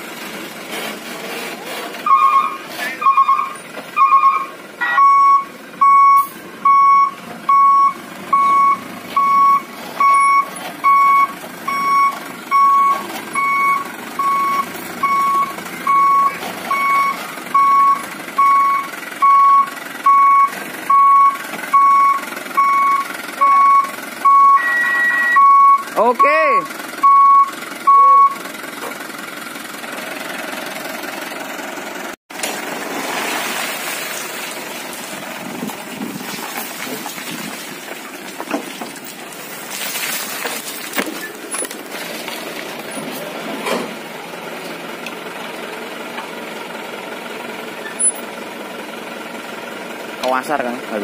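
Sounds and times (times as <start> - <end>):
truck engine running: 0.0 - 51.0
truck reversing alarm beeping: 2.0 - 28.9, 47.7 - 48.4.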